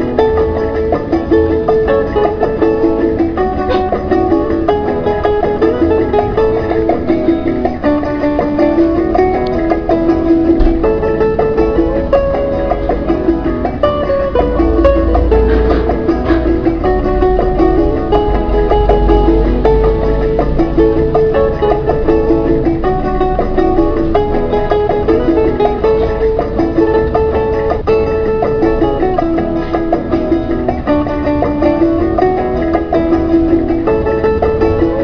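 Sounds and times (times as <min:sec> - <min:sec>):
plucked string instrumental music: 0:00.0 - 0:35.0.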